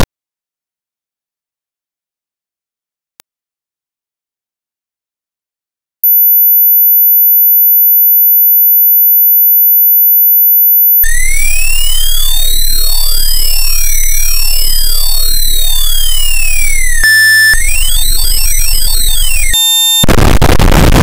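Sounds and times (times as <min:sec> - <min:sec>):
high-pitched electronic tone: 0:11.0 - 0:20.1
low buzz: 0:11.1 - 0:19.6
sweeping synthesized tones: 0:11.1 - 0:19.6.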